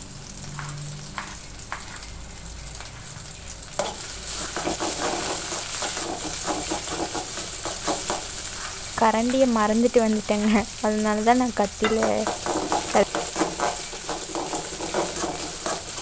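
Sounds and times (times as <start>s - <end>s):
onions sizzling in oil: 0.0s - 16.0s
knife scraping and knocking pan: 3.8s - 8.3s, 11.8s - 16.0s
knife tapping on cutting board: 11.8s - 12.8s.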